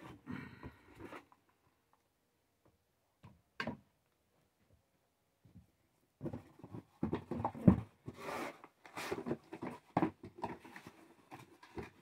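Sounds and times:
packaging rustling and knocking: 8.9s - 12.0s.

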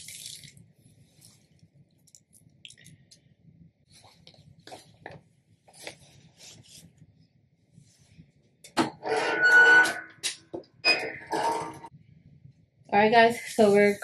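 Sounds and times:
heat press creaking squeal: 9.0s - 11.9s.

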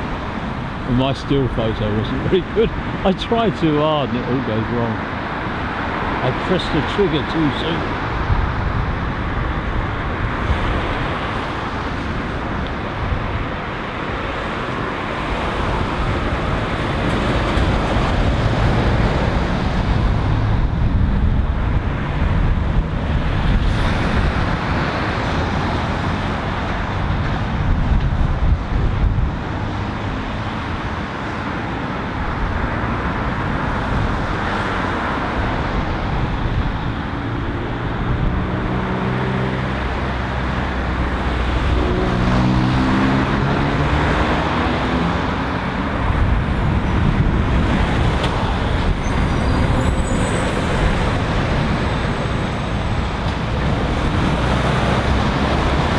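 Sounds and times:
road traffic passing: 0.0s - 55.9s.

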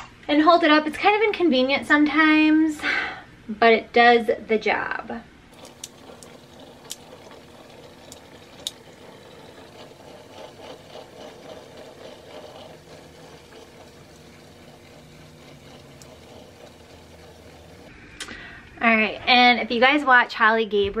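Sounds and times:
garment steamer buzzing and hissing: 5.5s - 18.0s.

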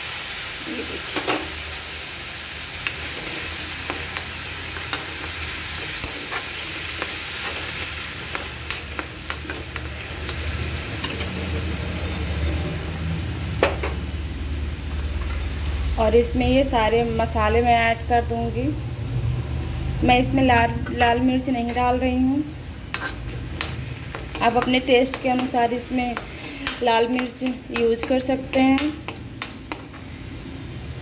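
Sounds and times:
masala sizzling in a metal pan: 0.0s - 31.0s
spoon scraping a pan: 2.8s - 11.5s, 22.9s - 30.2s.

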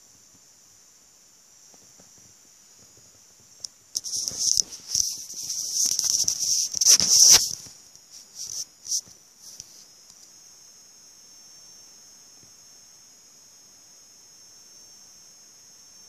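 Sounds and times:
steady high hiss: 0.0s - 16.0s
tablet handling rustles: 4.0s - 9.9s.

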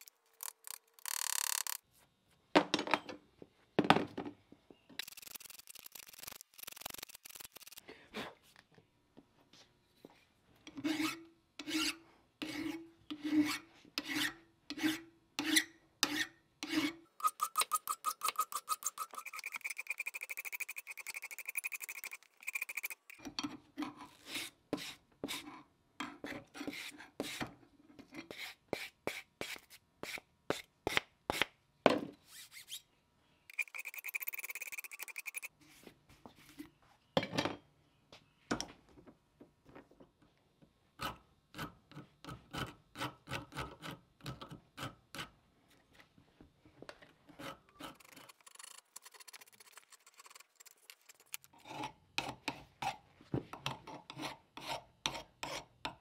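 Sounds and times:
file card buzzing rattle: 0.0s - 1.8s, 5.0s - 7.8s
file stroking metal: 10.8s - 23.2s, 33.5s - 35.6s, 47.3s - 53.0s.

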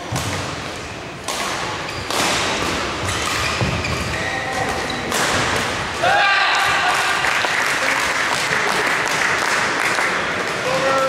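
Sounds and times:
rackets hitting shuttlecock: 0.0s - 6.8s.

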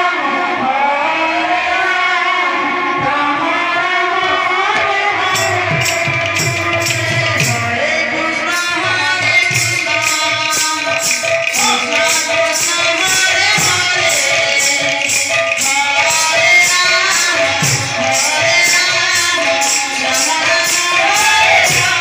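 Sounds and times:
person singing a chant: 0.0s - 22.0s
drum: 4.8s - 7.9s, 8.6s - 22.0s
jingling metal percussion: 4.8s - 22.0s.

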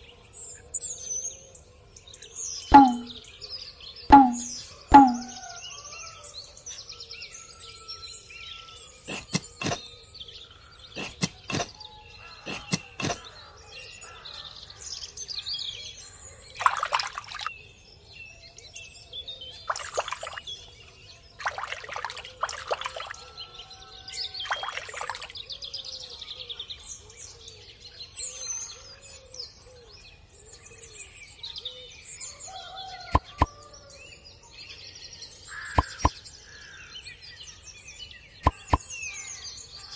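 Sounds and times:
birds chirping and singing: 0.0s - 39.9s
water poured onto sand: 16.5s - 17.5s, 19.7s - 20.4s, 21.4s - 23.2s, 24.4s - 25.4s
sharp clicks: 38.4s - 38.8s.

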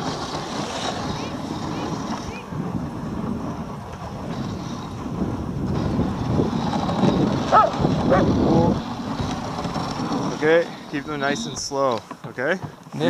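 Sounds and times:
sled runners hissing on snow: 0.0s - 3.5s
wind on microphone: 0.0s - 11.8s.

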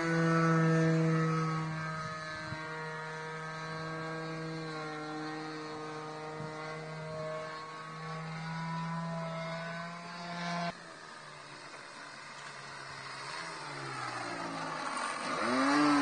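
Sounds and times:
model airplane motor whine: 0.0s - 16.0s.

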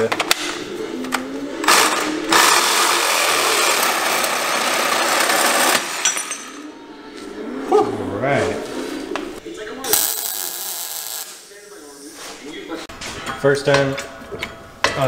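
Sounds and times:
reciprocating saw cutting steel: 1.7s - 6.0s.

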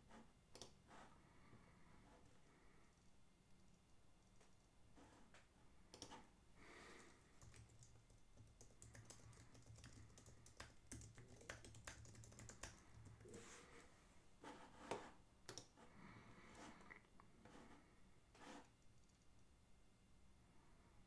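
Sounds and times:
keyboard typing: 5.9s - 6.2s, 6.8s - 13.4s.

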